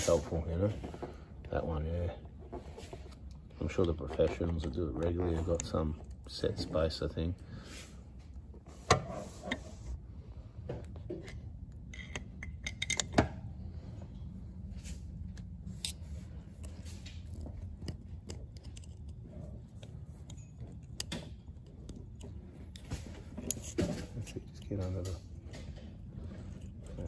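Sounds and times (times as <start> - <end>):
low steady hum: 0.0 - 27.0
screwdriver clicking and scraping: 11.2 - 13.2, 15.3 - 25.4, 26.3 - 27.0.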